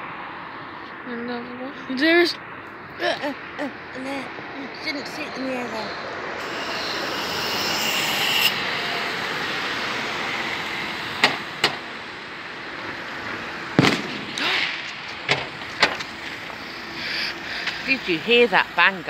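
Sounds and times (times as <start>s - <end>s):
car passing: 0.0s - 19.0s
firework bangs: 12.8s - 16.7s.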